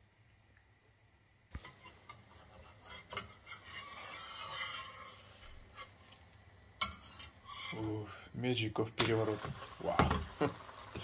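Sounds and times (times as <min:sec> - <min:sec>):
spatula scraping frying pan: 0:01.6 - 0:06.2, 0:06.8 - 0:08.3.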